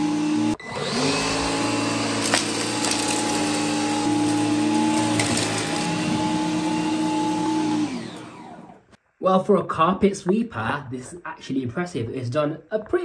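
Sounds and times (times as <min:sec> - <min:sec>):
vacuum cleaner running: 0:00.0 - 0:08.9.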